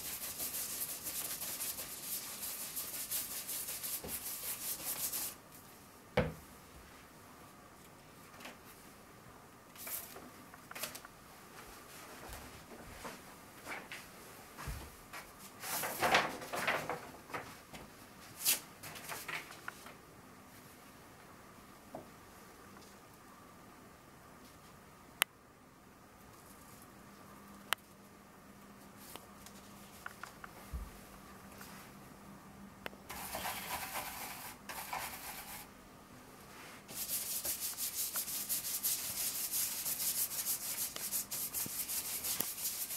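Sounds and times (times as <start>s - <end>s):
stencil brush scratching paper: 0.0s - 5.4s, 33.1s - 35.7s, 36.9s - 42.9s.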